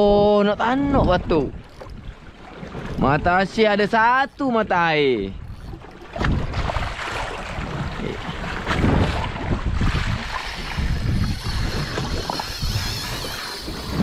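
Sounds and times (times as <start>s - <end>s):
wind buffeting microphone: 0.0s - 14.0s
water washing against boat hull: 0.8s - 14.0s.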